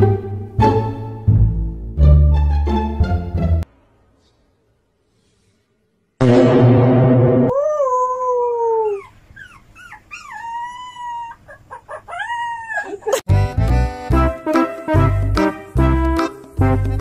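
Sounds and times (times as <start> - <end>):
music: 0.0 - 3.7, 13.3 - 17.0
loud dense noise: 6.2 - 7.5
puppy howling: 7.5 - 13.2.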